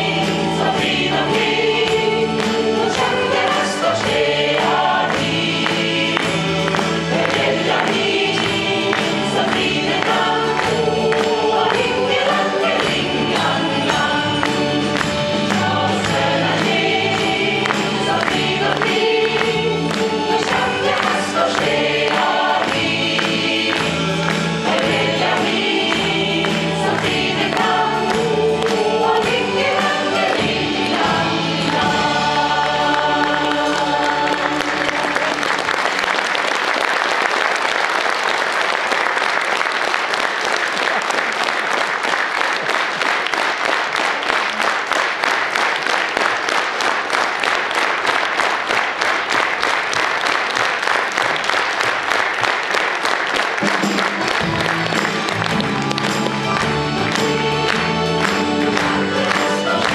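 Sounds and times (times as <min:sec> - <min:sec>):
instrumental accompaniment: 0:00.0 - 0:36.1, 0:53.3 - 0:59.9
mixed choir singing: 0:00.0 - 0:36.4, 0:53.8 - 0:59.9
applause: 0:00.0 - 0:59.9.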